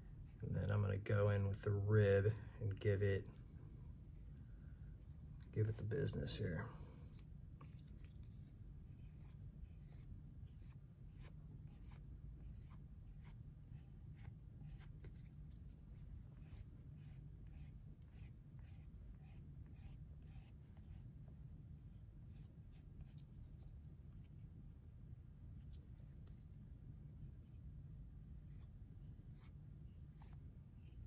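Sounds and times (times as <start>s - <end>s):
low steady hum: 0.0s - 31.0s
scratchy rib strokes on clay: 5.6s - 24.4s.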